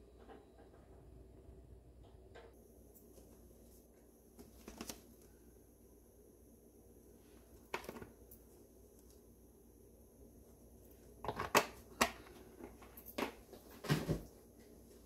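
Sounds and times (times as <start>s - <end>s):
faint low hum: 0.0s - 15.0s
rustling and clicking handling noise: 2.0s - 5.3s, 7.6s - 9.2s, 11.2s - 15.0s.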